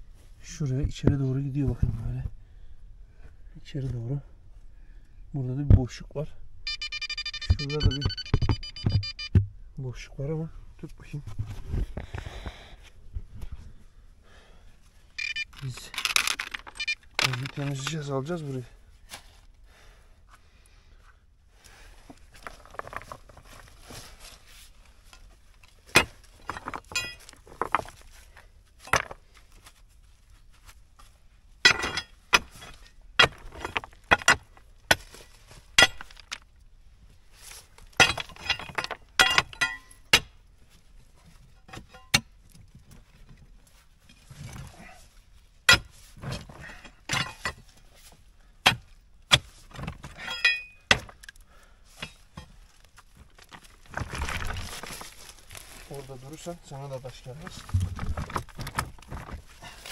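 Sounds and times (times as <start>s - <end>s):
loose stones rattling: 15.2s - 18.2s, 22.2s - 24.2s, 25.0s - 29.6s, 31.6s - 36.6s, 37.8s - 40.1s, 52.0s - 59.9s
pry bar clinking on stones: 26.0s - 27.4s, 38.0s - 40.1s, 50.2s - 51.4s.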